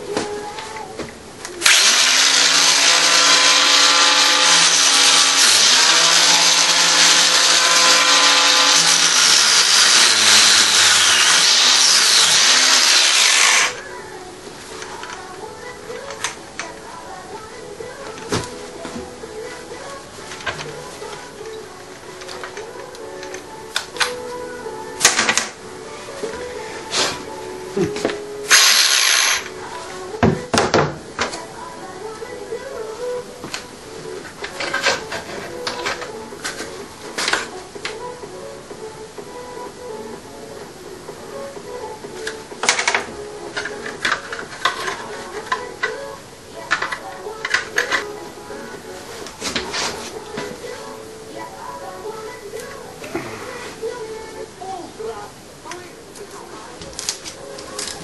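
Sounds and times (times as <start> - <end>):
angle grinder cutting steel: 1.6 - 13.8, 28.5 - 29.5.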